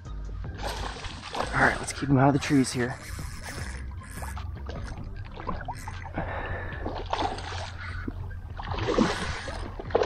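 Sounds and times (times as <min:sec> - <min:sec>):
fish splashing in water: 0:00.6 - 0:02.1, 0:03.5 - 0:10.0.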